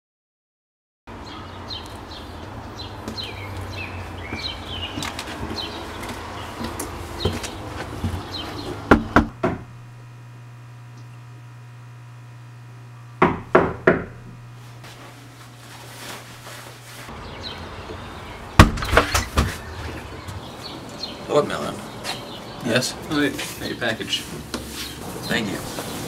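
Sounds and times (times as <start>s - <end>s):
small birds chirping: 1.2s - 8.9s, 17.1s - 26.0s
low steady hum: 8.8s - 21.0s
knocking on door: 8.9s - 9.7s, 13.2s - 14.3s.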